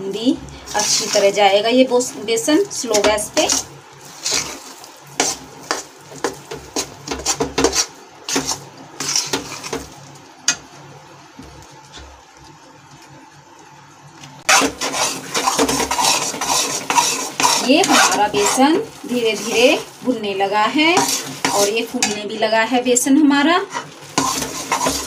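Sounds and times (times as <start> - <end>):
metal spoon scraping a pan: 0.7 - 1.4, 2.8 - 9.8, 14.5 - 19.9, 20.9 - 22.5, 23.6 - 25.0.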